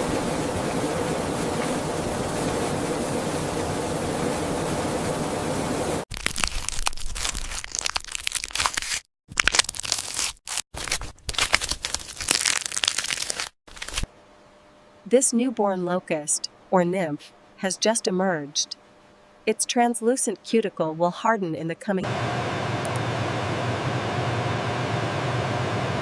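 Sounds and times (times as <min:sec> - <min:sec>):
crackling and crunching: 0:06.1 - 0:14.1.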